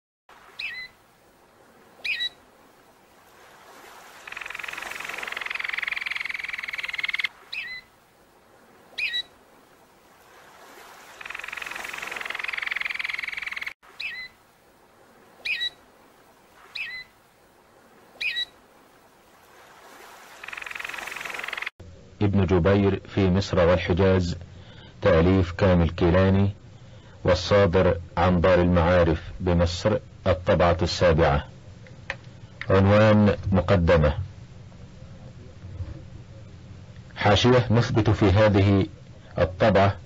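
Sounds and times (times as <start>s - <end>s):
short chirping bird calls: 0.5s - 1.0s, 2.0s - 2.4s, 4.2s - 7.9s, 8.9s - 9.3s, 11.1s - 14.4s, 15.4s - 15.8s, 16.6s - 17.1s, 18.2s - 18.6s, 20.3s - 21.7s.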